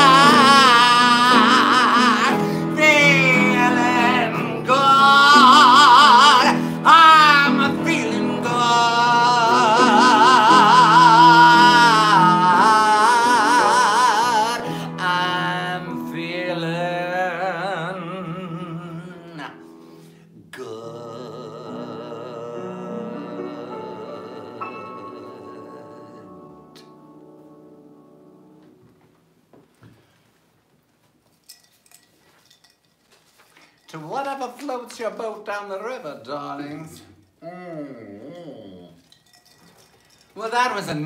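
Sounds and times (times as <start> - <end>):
person singing with vibrato: 0.0 - 28.6, 36.8 - 39.1
upright piano: 0.0 - 29.5
acoustic guitar: 0.0 - 30.4.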